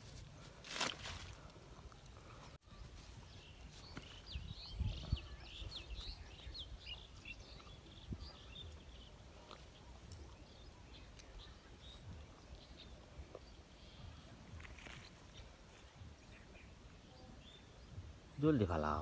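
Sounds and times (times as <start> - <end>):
faint outdoor background noise: 0.0 - 19.0
small birds chirping: 1.4 - 19.0.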